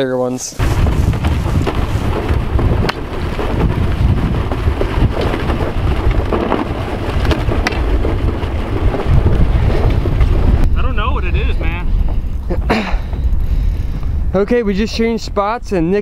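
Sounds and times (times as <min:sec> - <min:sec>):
wind buffeting microphone: 0:00.6 - 0:16.0.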